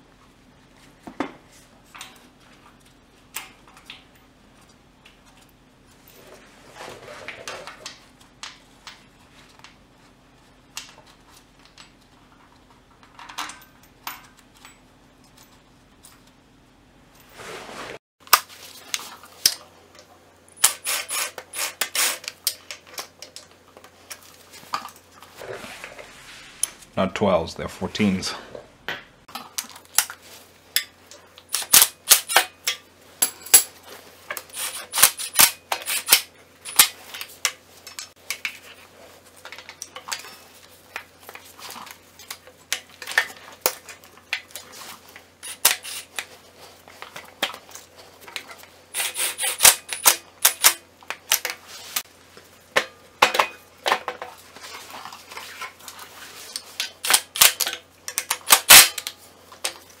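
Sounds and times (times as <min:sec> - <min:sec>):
metal tools clinking: 0:32.5 - 0:36.9.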